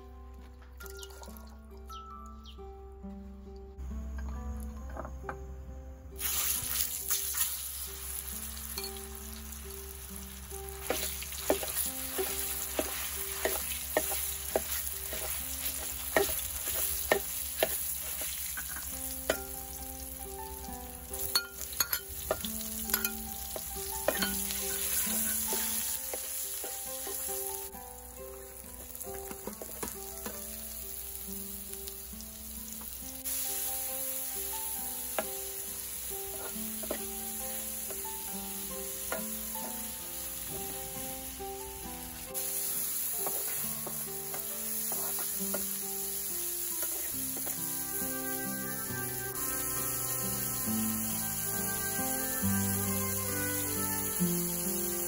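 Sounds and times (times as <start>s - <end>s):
food frying in hot oil: 6.2s - 55.0s
metal spoon scraping a pan: 10.8s - 19.5s, 21.3s - 27.5s, 36.2s - 37.1s, 43.2s - 45.7s, 46.8s - 47.6s.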